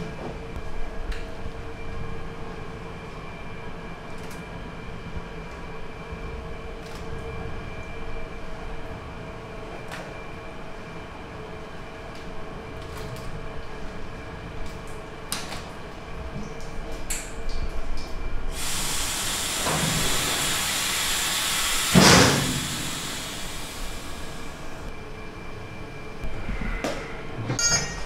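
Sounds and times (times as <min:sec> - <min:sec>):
steady hiss: 0:18.5 - 0:24.9.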